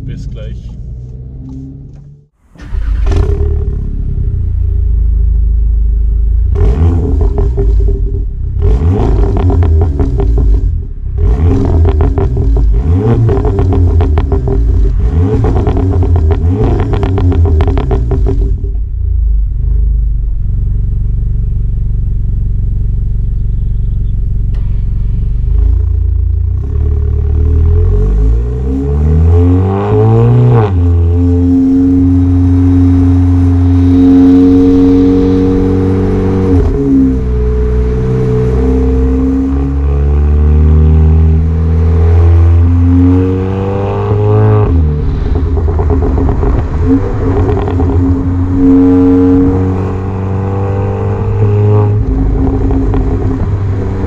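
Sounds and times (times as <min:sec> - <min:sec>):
car engine idling: 0:00.0 - 0:27.6, 0:51.9 - 0:54.0
car exhaust revving: 0:00.0 - 0:54.0
car accelerating away: 0:01.2 - 0:05.4, 0:06.5 - 0:18.7, 0:25.4 - 0:54.0.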